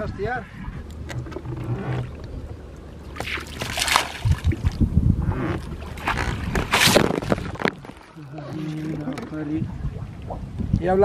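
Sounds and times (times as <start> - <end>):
low thumps against boat: 0.5 - 7.9
fish splashing at surface: 3.1 - 4.8.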